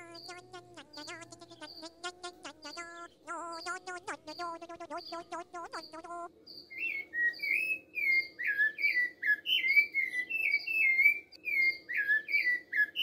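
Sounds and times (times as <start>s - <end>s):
thrush singing whistled phrases: 0.0s - 13.0s.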